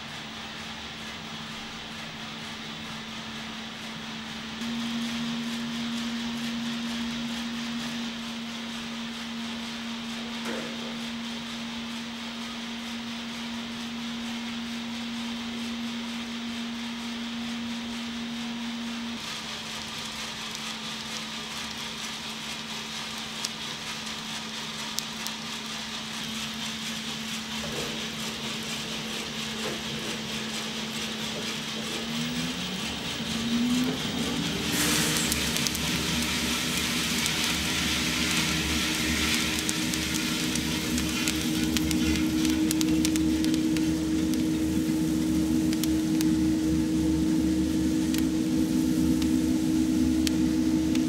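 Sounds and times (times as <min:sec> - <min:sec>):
coffee roaster humming: 0:00.0 - 0:51.0
motor spinning up with whine: 0:02.2 - 0:51.0
beans pouring out rushing: 0:34.6 - 0:51.0.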